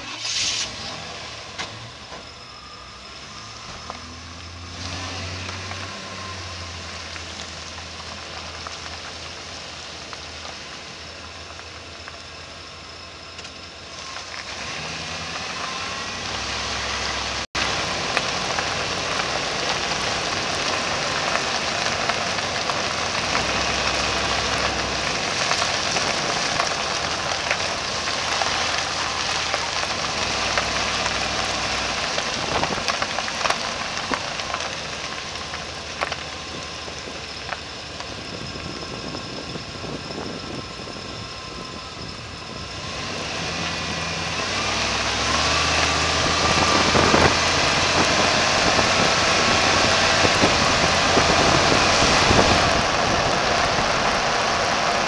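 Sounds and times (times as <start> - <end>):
road noise: 0.0 - 55.0
truck running gear: 0.0 - 55.0
wind rushing: 45.6 - 55.0.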